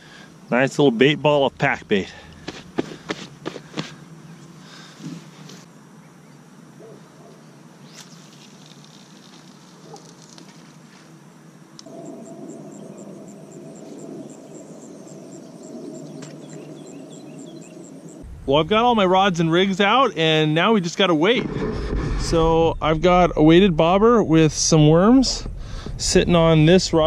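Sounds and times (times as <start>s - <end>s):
crickets chirping: 0.0s - 27.0s
outdoor background noise: 0.0s - 27.0s.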